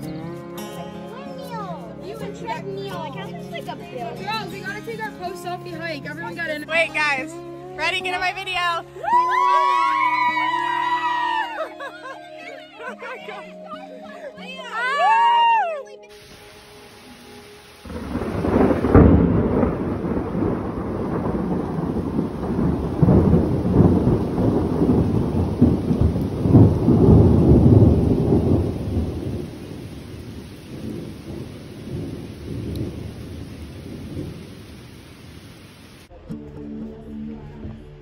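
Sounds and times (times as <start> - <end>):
steady rain: 1.4 - 36.1
thunder rumbling: 16.1 - 36.1.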